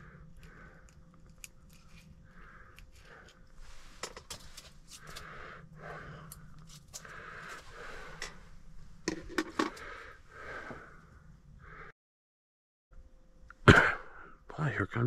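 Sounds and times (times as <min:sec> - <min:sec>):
man breathing through nose: 0:00.0 - 0:01.2, 0:01.9 - 0:11.9.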